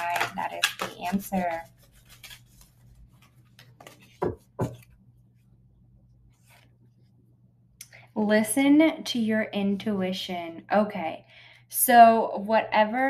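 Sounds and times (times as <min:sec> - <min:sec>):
cards being shuffled: 0:00.0 - 0:04.9.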